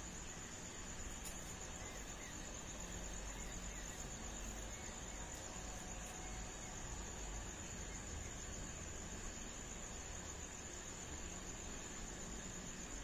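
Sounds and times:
background hiss: 0.0s - 13.0s
crickets trilling: 0.0s - 13.0s
small quiet chirps: 1.0s - 6.8s.

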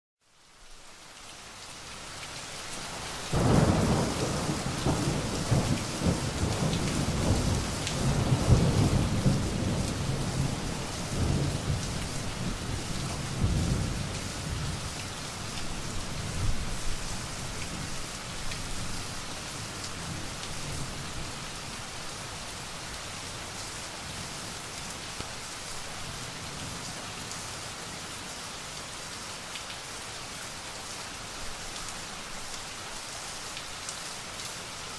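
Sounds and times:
steady rain: 0.2s - 34.9s
thunder rumbling: 3.3s - 14.7s.

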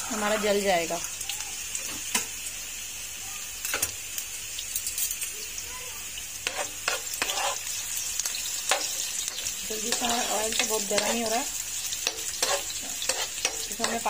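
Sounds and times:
onions sizzling in hot oil: 0.0s - 14.0s
stirring knocks and scrapes in pan: 6.4s - 14.0s.

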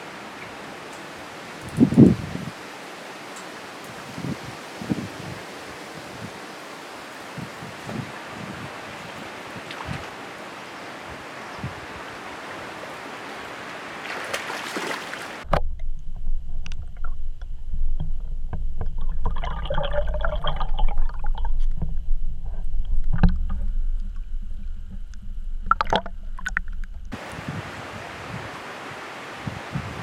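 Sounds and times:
water noise: 0.0s - 30.0s
wind: 0.0s - 30.0s
muffled underwater rumble: 15.5s - 27.2s
underwater clicks and knocks: 15.5s - 27.2s.

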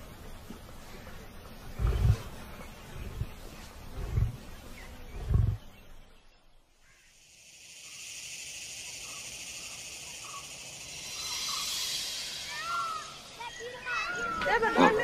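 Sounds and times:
faint chirps: 0.0s - 15.0s
steady high hiss: 0.0s - 15.0s
lion grunting: 1.7s - 5.8s.

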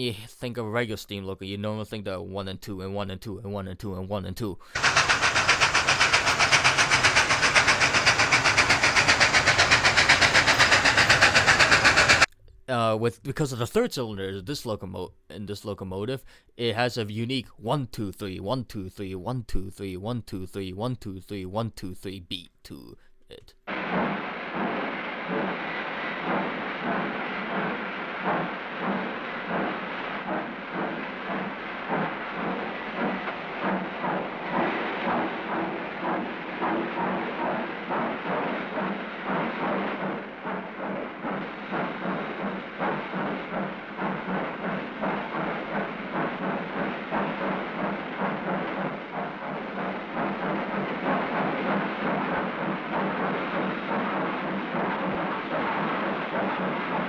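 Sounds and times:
steam locomotive exhaust chuffing: 4.6s - 12.3s, 22.7s - 57.0s.

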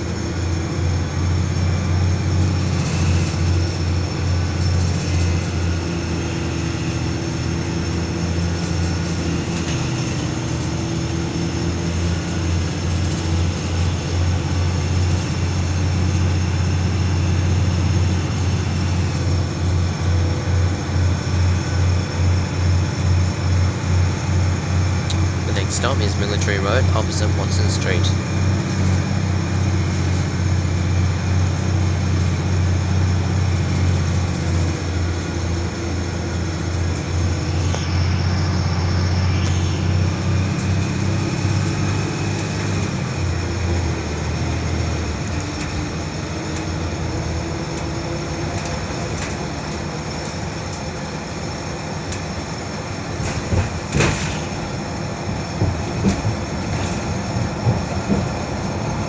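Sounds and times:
bus engine droning: 0.0s - 59.0s
road and tyre noise: 0.0s - 59.0s
bus body rattles and knocks: 40.2s - 59.0s.

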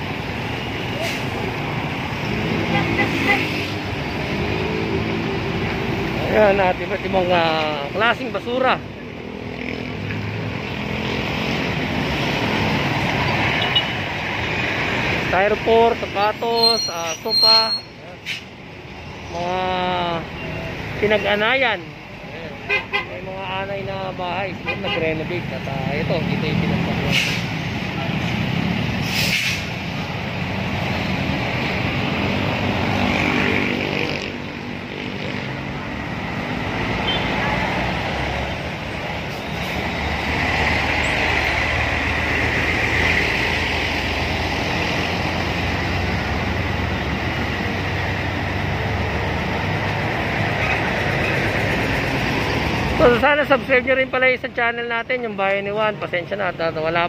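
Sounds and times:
street traffic road noise: 0.0s - 57.0s
hiss: 29.0s - 29.7s.

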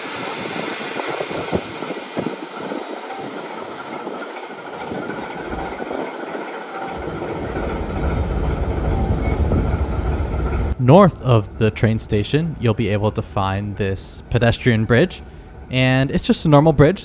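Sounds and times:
wheels clicking over track: 0.0s - 10.8s
diesel engine rumble: 0.0s - 17.0s.

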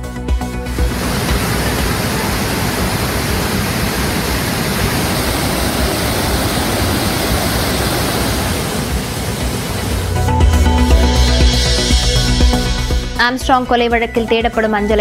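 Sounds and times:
water rushing over rapids: 0.7s - 10.8s.

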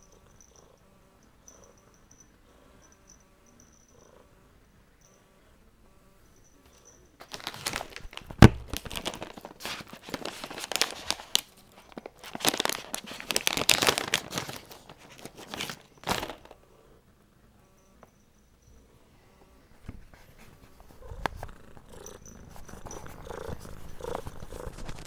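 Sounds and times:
plastic pouch crinkling: 7.2s - 16.6s, 22.6s - 25.0s.

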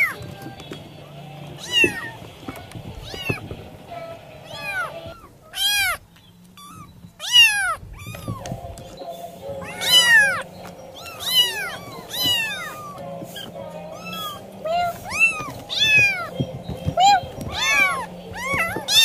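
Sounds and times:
cat meowing: 1.6s - 2.2s, 3.0s - 6.0s, 6.6s - 8.6s, 9.6s - 16.4s, 17.0s - 19.0s.

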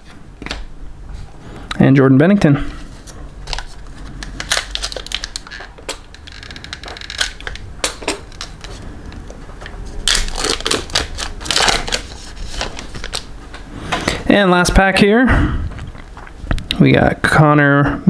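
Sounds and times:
card pack wrapper crinkling: 2.9s - 13.3s.

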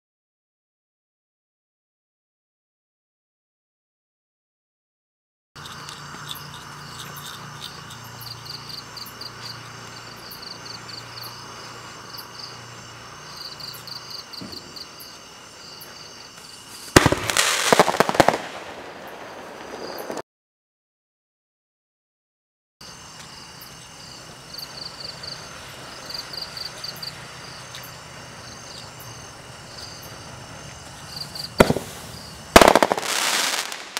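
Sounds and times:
crickets chirping: 5.6s - 20.2s, 22.8s - 33.9s
firework burst with sharp cracks: 16.7s - 20.2s, 30.9s - 33.9s.

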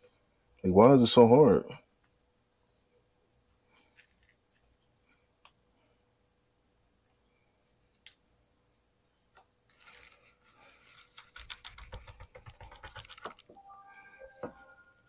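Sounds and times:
knife scraping mango: 9.7s - 13.4s.

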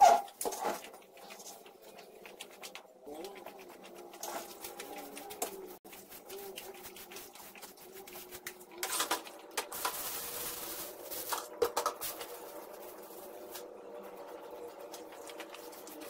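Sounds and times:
rubbish rustling: 4.2s - 13.8s.

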